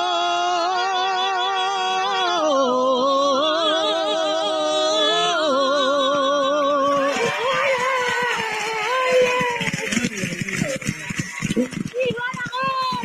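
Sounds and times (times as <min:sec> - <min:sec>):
person singing unaccompanied: 0:00.0 - 0:09.8.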